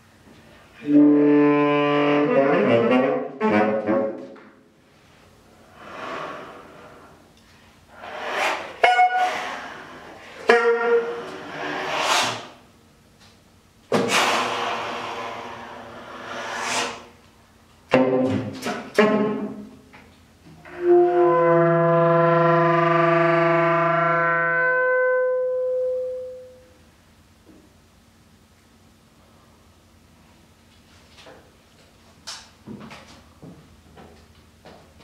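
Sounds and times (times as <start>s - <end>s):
solo saxophone: 0.8s - 4.4s, 8.0s - 11.7s, 17.9s - 19.7s, 20.6s - 26.8s.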